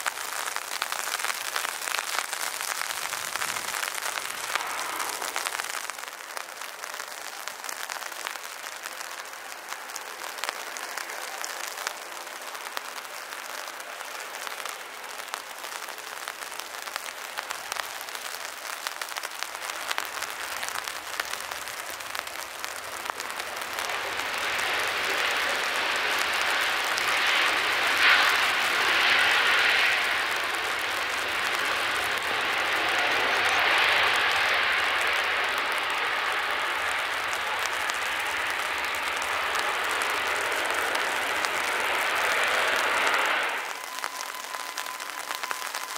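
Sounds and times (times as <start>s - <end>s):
heavy rain patter: 0.0s - 45.9s
jet engines roaring: 1.9s - 6.7s, 19.7s - 45.9s.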